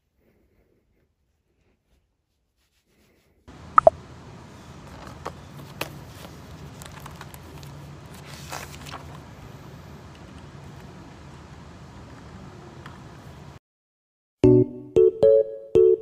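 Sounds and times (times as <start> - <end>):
low hum of traffic: 3.5 - 13.6
sharp clicks: 3.8 - 4.0
notebook pages flipping: 4.5 - 9.5.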